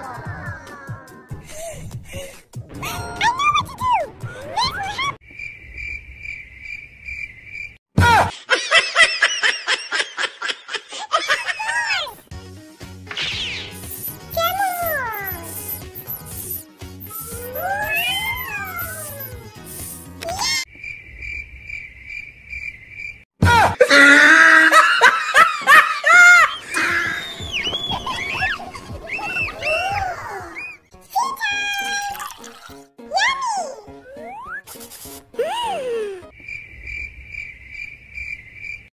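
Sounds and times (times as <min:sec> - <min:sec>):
cricket chirping: 0:05.2 - 0:07.8, 0:20.7 - 0:23.2, 0:36.3 - 0:38.9
girls laughing and squealing: 0:08.5 - 0:12.2, 0:23.8 - 0:30.8
high falling squeaks: 0:13.1 - 0:20.6, 0:26.4 - 0:30.9.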